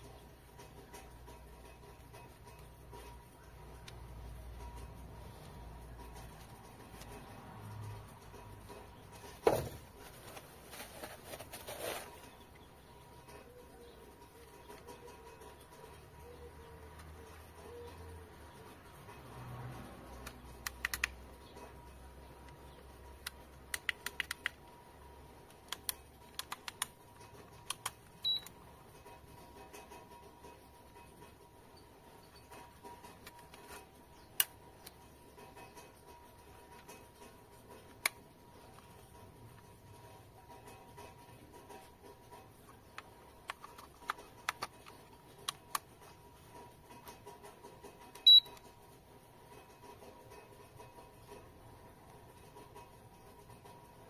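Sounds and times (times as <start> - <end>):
short high-pitched beep: 48.3 - 48.5.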